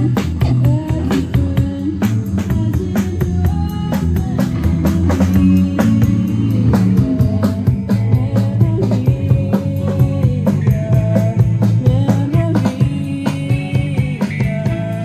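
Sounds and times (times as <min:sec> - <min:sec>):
drum kit beat: 0:00.0 - 0:15.0
electric guitars and bass: 0:00.0 - 0:15.0
person singing: 0:00.0 - 0:15.0.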